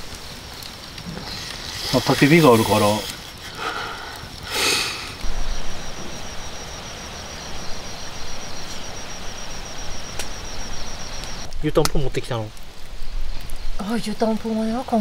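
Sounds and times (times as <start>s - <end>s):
high pulsed insect trill: 0.0s - 15.0s
low hiss: 0.0s - 15.0s.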